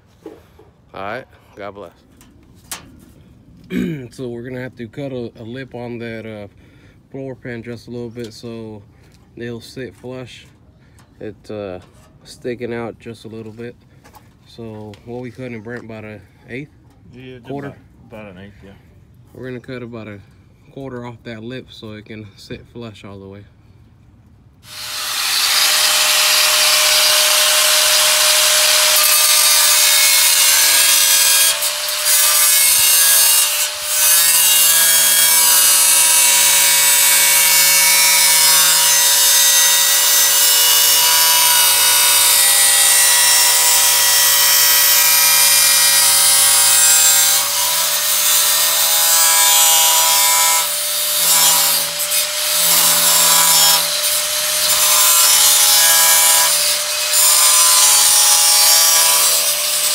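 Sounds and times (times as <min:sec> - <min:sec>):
power tool cutting metal: 0:24.6 - 0:59.9.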